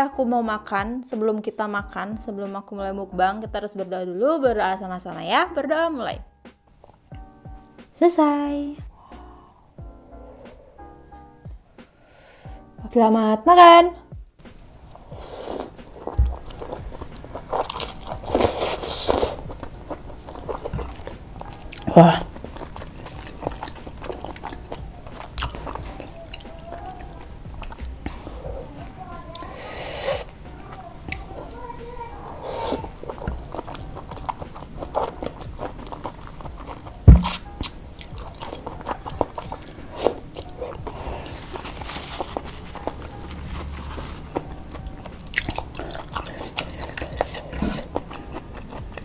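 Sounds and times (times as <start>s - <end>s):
noodles slurped and chewed: 14.9s - 31.7s, 32.3s - 49.0s
dull low thump: 16.2s - 16.5s, 37.1s - 37.4s
wet mouth clicks and smacks: 27.5s - 27.9s, 35.2s - 40.2s, 45.0s - 48.8s
dull loud thump: 37.1s - 37.4s.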